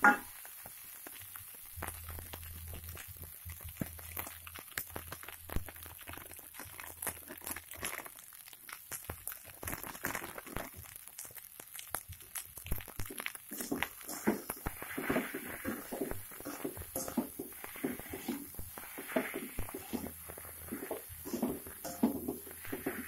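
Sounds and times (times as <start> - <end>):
plastic sachet crinkling: 2.0 - 23.0
metal spatula scraping wok: 13.5 - 23.0.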